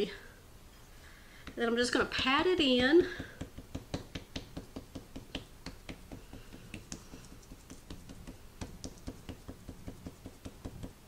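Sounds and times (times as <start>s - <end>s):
fingertips patting meat: 3.0s - 11.0s.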